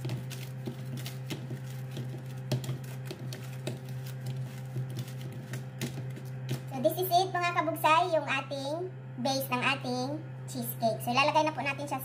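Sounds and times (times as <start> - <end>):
hands patting crumbs in metal pan: 0.0 - 6.7
steady low hum: 0.0 - 12.0.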